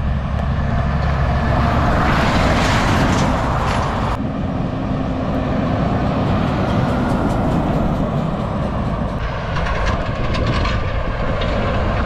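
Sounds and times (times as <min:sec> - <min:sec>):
truck diesel engine running: 0:00.0 - 0:02.5.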